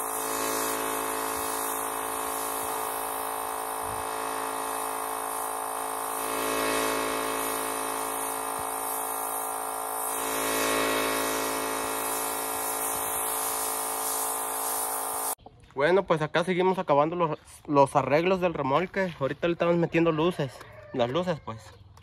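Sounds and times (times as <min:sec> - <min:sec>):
air compressor motor hum: 0:00.0 - 0:15.4
paint spray gun hissing: 0:00.0 - 0:15.4.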